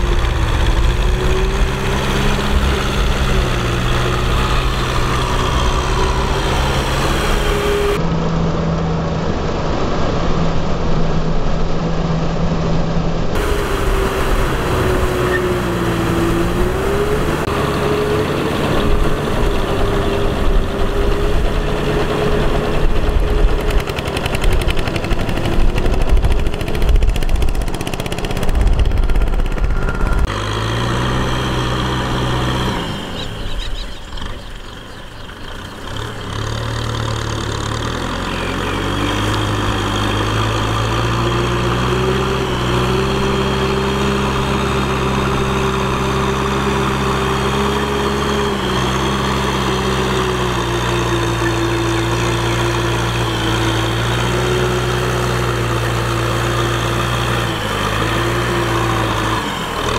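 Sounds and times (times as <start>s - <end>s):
tractor engine under load: 0.0s - 9.9s, 11.7s - 59.9s
wavering whine: 0.0s - 17.6s, 24.7s - 30.4s.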